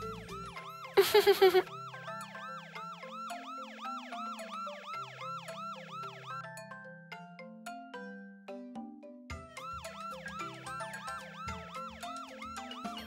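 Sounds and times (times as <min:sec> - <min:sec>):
toy fire engine siren whooping: 0:00.0 - 0:06.6, 0:09.5 - 0:13.0
simple background tune: 0:00.0 - 0:13.0.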